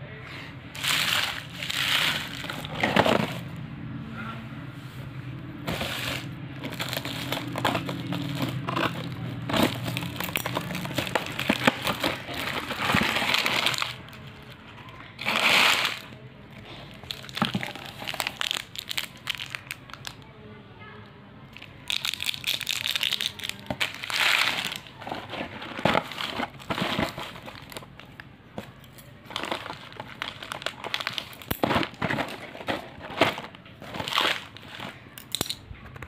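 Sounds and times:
cellophane tearing with scissors: 0:00.8 - 0:03.4, 0:05.8 - 0:14.2, 0:29.3 - 0:35.5
plastic wrappers crinkling: 0:00.8 - 0:03.5, 0:05.7 - 0:20.2, 0:21.6 - 0:35.6.

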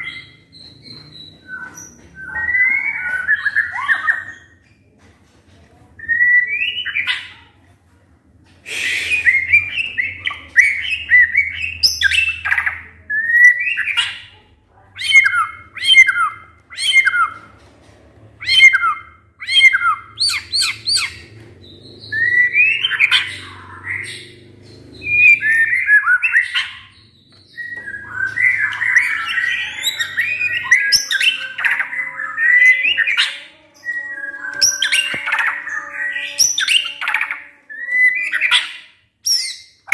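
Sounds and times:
bird singing whistled phrases: 0:08.7 - 0:14.2, 0:27.5 - 0:39.9.

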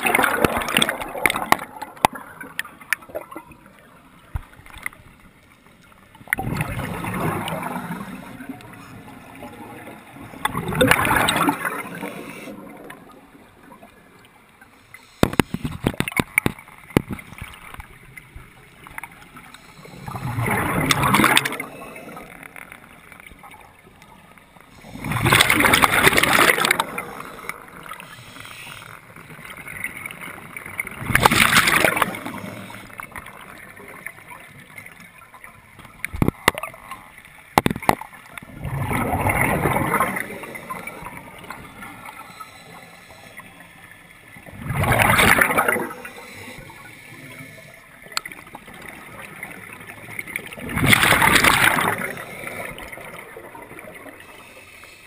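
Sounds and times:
exhaled bubbles rushing: 0:00.0 - 0:03.7, 0:06.2 - 0:14.0, 0:19.9 - 0:22.6, 0:24.8 - 0:28.0, 0:29.3 - 0:34.8, 0:37.8 - 0:42.2, 0:44.3 - 0:46.6, 0:48.0 - 0:54.4
quiet regulator hiss: 0:11.7 - 0:20.4, 0:26.8 - 0:31.0, 0:40.2 - 0:44.5, 0:45.8 - 0:50.6, 0:51.9 - 0:55.0.

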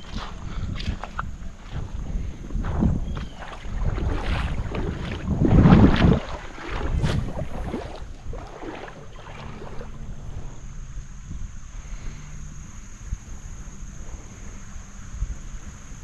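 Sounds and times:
water sloshing and splashing: 0:00.0 - 0:11.0
wind buffeting microphone: 0:00.0 - 0:16.0.

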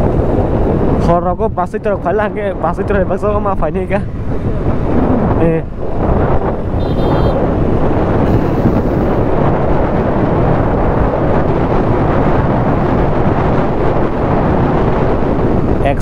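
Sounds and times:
wind buffeting microphone: 0:00.0 - 0:16.0
motorcycle engine running: 0:06.6 - 0:09.4.

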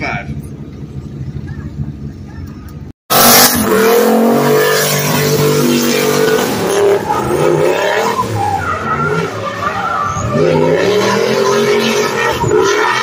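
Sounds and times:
tyres skidding: 0:00.0 - 0:13.0
car engine revving hard: 0:03.1 - 0:09.6, 0:10.2 - 0:13.0.

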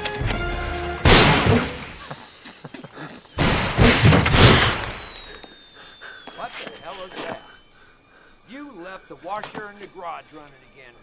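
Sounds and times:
air hissing out of tyre: 0:01.1 - 0:06.4.

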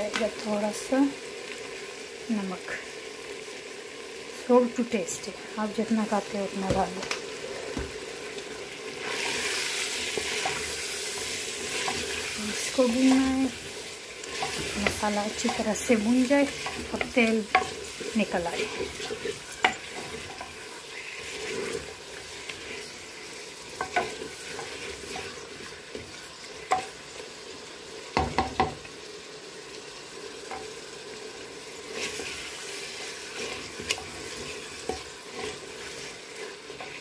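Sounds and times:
food sizzling in oil: 0:00.0 - 0:37.0
spoon stirring: 0:10.0 - 0:22.9, 0:23.7 - 0:26.9, 0:33.4 - 0:37.0
spoon knocking against pot: 0:28.2 - 0:28.8.

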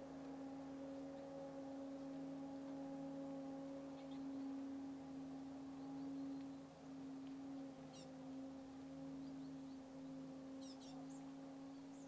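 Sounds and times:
steady droning tone: 0:00.0 - 0:12.0.

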